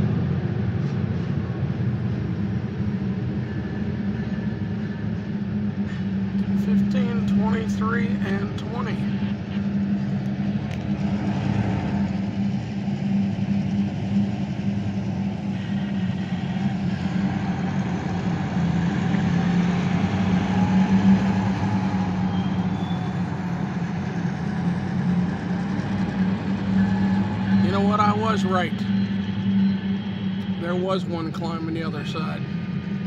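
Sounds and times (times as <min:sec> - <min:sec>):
diesel locomotive engines droning: 0:00.0 - 0:33.0.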